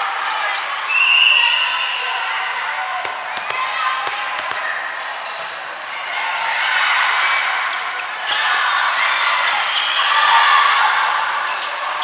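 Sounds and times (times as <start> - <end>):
volleyball being hit: 3.0 - 5.1.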